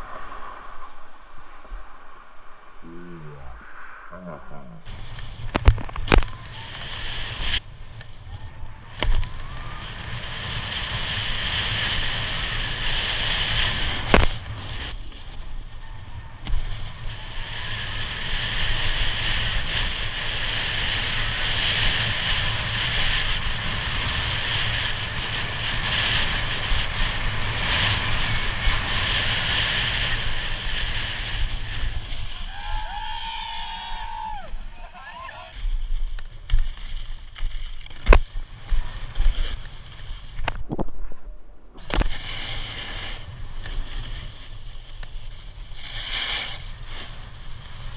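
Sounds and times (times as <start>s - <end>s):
wind rumble on microphone: 0.0s - 36.6s
snowboard scraping over snow: 4.8s - 40.6s, 41.8s - 47.9s.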